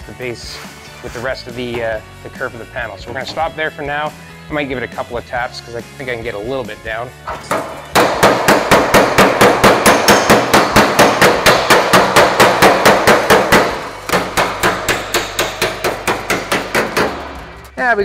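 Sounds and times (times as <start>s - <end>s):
hammer tapping sheet steel: 7.4s - 17.6s.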